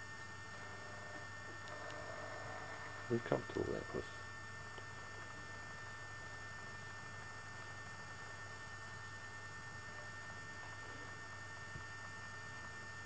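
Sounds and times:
thin high whine: 0:00.0 - 0:04.6
electrical hum: 0:00.0 - 0:13.0.

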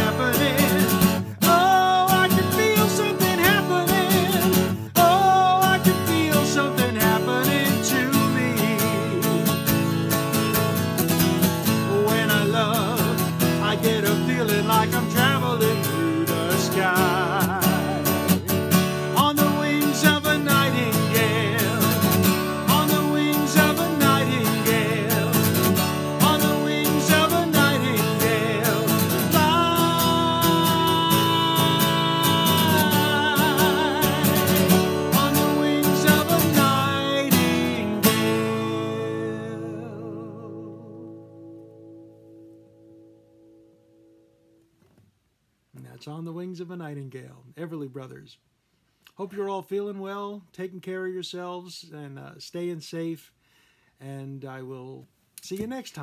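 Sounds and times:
man singing with vibrato: 0:00.0 - 0:10.2, 0:11.0 - 0:41.6
strummed acoustic guitar: 0:00.0 - 0:45.0.

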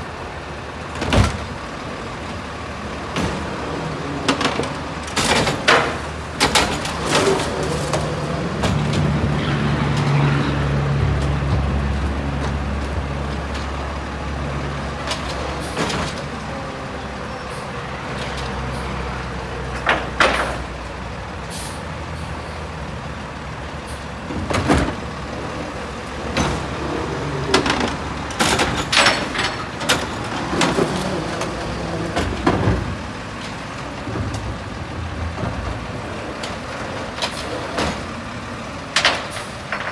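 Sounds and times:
garbage truck diesel engine revving: 0:00.0 - 0:39.9
air brake hisses and bangs: 0:21.5 - 0:22.3.

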